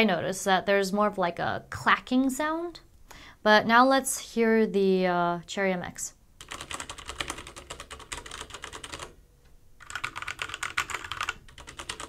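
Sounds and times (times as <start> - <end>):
mechanical keyboard typing: 6.4 - 9.2, 9.8 - 12.0.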